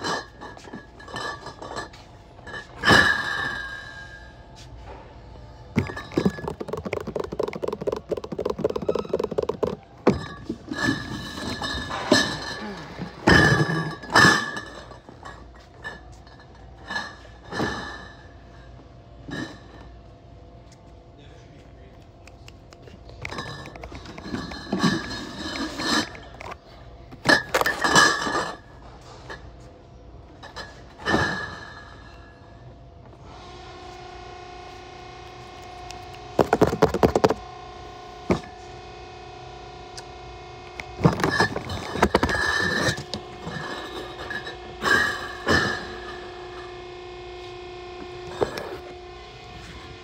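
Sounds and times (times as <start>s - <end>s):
glass bottles rattling and clinking: 0.0s - 4.2s, 5.8s - 18.1s, 23.1s - 26.6s, 27.2s - 28.7s, 36.4s - 37.4s, 41.0s - 46.1s.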